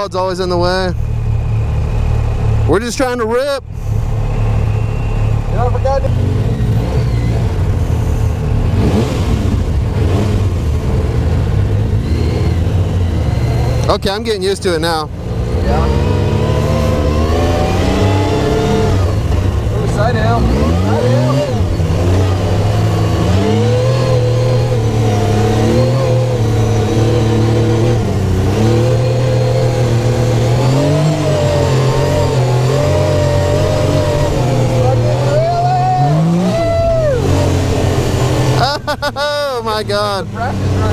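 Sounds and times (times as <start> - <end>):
engine running from inside cab: 0.0 - 40.9.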